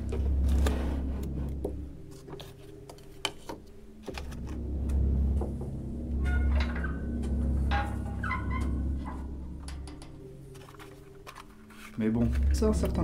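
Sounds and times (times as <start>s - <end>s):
low steady drone: 0.0s - 2.6s, 4.1s - 11.4s.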